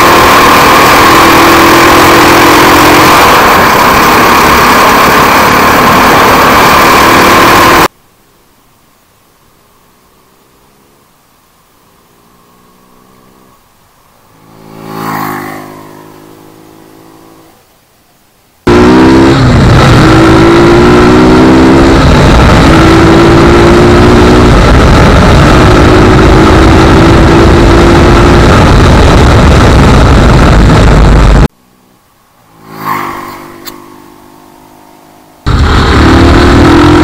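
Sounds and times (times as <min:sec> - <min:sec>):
loud wind rush: 0:00.0 - 0:07.9, 0:18.7 - 0:31.5, 0:35.4 - 0:37.0
motorcycle engine accelerating: 0:00.0 - 0:07.9, 0:11.9 - 0:17.7, 0:18.6 - 0:37.0
motorcycle engine passing by: 0:12.1 - 0:17.6, 0:31.7 - 0:35.5.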